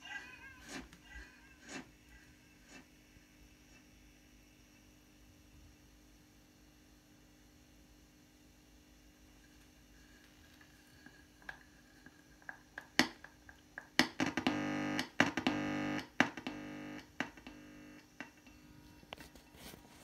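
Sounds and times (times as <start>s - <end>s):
distorted buzzing echo tone: 14.2s - 18.4s.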